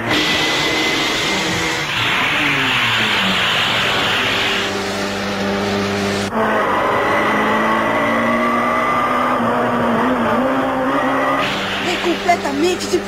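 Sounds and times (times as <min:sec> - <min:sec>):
motorcycle engine drone: 0:00.0 - 0:13.0.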